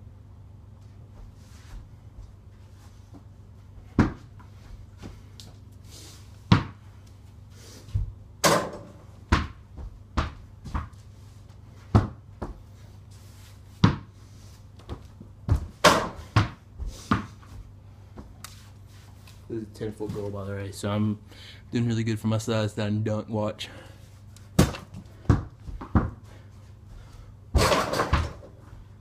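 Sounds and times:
ball thumping on hoop and door: 0:04.0 - 0:04.3, 0:06.5 - 0:06.8, 0:08.0 - 0:10.9, 0:11.9 - 0:12.6, 0:13.8 - 0:14.1, 0:14.9 - 0:17.4, 0:24.6 - 0:26.2, 0:27.5 - 0:28.6.

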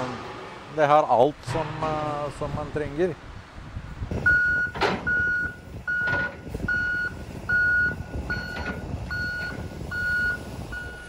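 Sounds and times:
diesel engine running: 0:00.0 - 0:11.0
reversing alarm beeping: 0:04.2 - 0:11.0.

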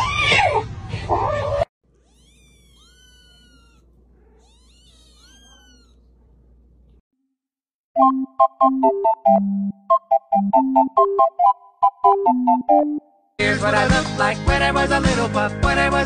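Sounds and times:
kittens mewing faintly: 0:00.3 - 0:06.2
cat meowing loudly: 0:02.0 - 0:06.0.

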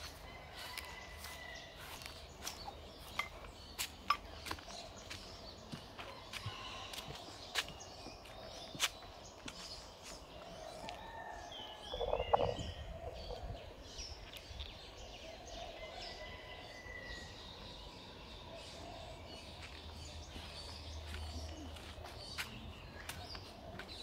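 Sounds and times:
small birds chirping: 0:00.0 - 0:24.0.

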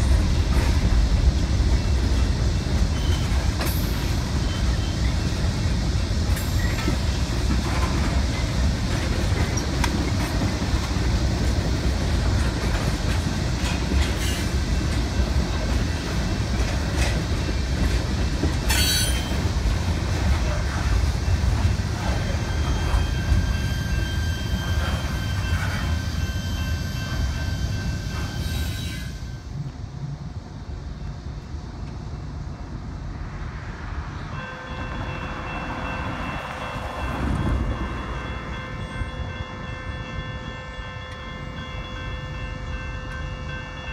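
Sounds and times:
train clanks: 0:00.0 - 0:43.9
train wheels rumbling on rail: 0:00.0 - 0:43.9
high metallic squeal: 0:02.9 - 0:05.2, 0:18.7 - 0:19.4, 0:22.2 - 0:29.4.

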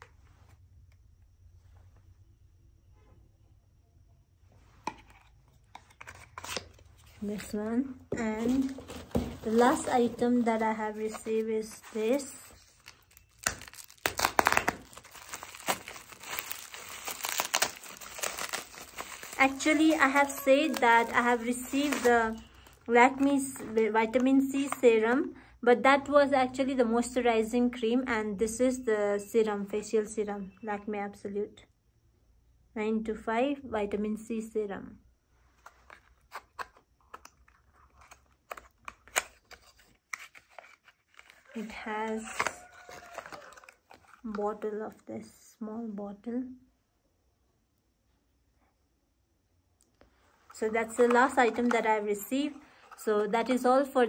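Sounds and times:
plastic packaging crinkling and tearing: 0:08.4 - 0:23.8, 0:35.7 - 0:41.6, 0:50.5 - 0:53.1.

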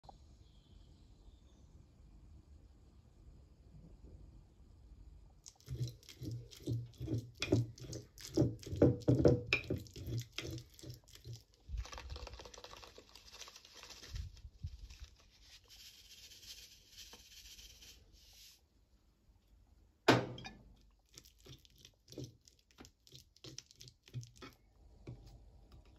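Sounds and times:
fork mashing on ceramic plate: 0:05.5 - 0:11.5
spice shaken out rustle: 0:10.4 - 0:18.6.

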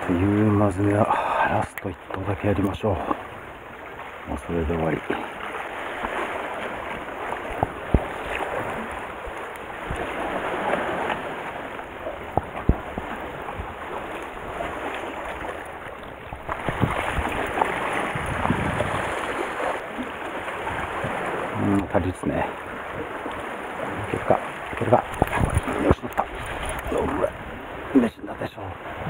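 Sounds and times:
sea lapping among concrete blocks: 0:00.0 - 0:29.0
wind on microphone: 0:06.0 - 0:19.8, 0:24.8 - 0:27.9.

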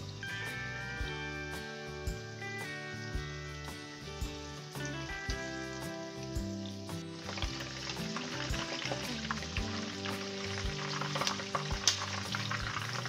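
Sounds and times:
chicken sizzling in hot oil: 0:00.0 - 0:13.0
soft background music: 0:00.0 - 0:13.0.

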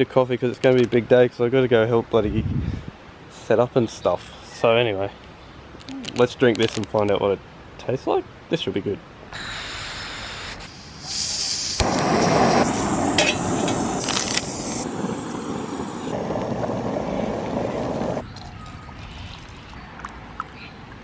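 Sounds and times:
gas hissing: 0:09.3 - 0:18.2
stove burner flame rushing: 0:09.4 - 0:18.2.

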